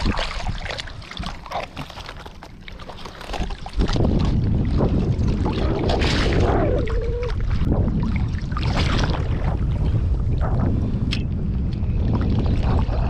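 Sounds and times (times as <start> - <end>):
water sloshing and splashing: 0.0 - 13.0
low rumble on microphone: 2.8 - 13.0.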